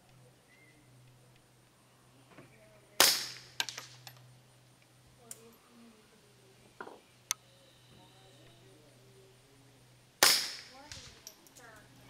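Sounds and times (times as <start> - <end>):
suppressed rifle shot: 10.2 - 11.1.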